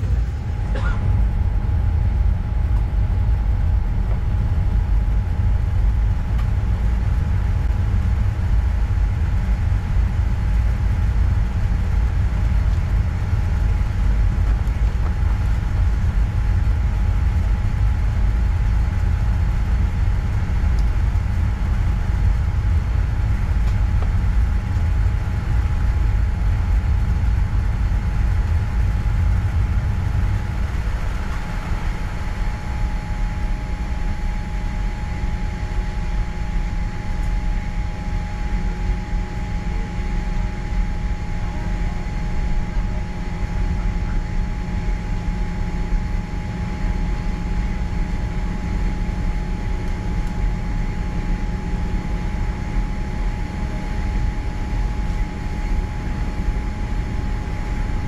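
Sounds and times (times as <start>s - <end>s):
vehicle interior rumble: 0.0s - 40.2s
faint steady hum: 0.0s - 58.0s.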